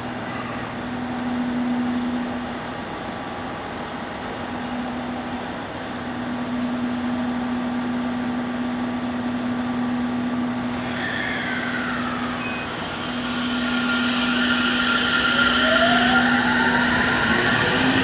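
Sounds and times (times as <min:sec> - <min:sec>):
electric train humming: 0:00.7 - 0:18.0
train motors rising whine: 0:06.4 - 0:18.0
train hiss: 0:10.6 - 0:18.0.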